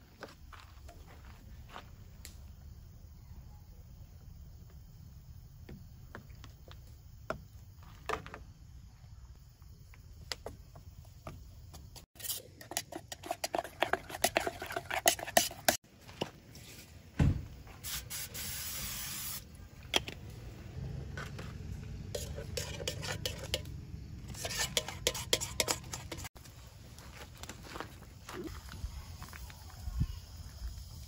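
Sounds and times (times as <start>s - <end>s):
spoon scraping metal pot: 12.2s - 15.8s, 22.1s - 23.7s, 24.3s - 26.4s
thump: 17.2s - 17.5s
aerosol spray hiss: 17.8s - 19.5s.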